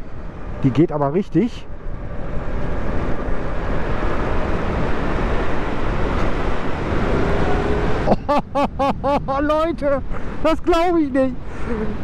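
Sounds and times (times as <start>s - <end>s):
tyre and road noise: 0.0s - 12.0s
wind rushing over microphone: 1.6s - 12.0s.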